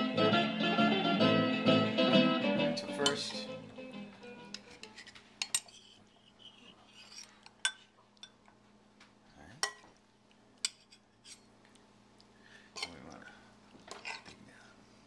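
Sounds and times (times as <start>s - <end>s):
guitar music: 0.0s - 4.9s.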